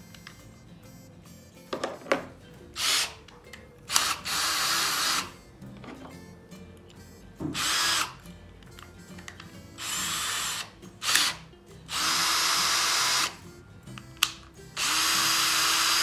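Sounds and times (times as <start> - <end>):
cordless drill motor running: 3.9 - 5.3, 7.6 - 8.2, 9.8 - 13.4, 14.8 - 16.0.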